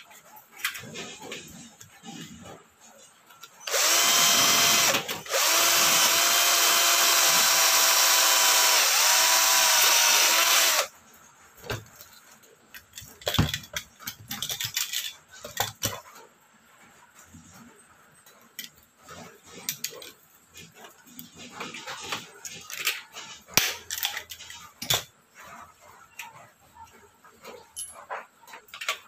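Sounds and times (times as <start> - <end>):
cordless drill whining into metal: 3.6 - 10.9.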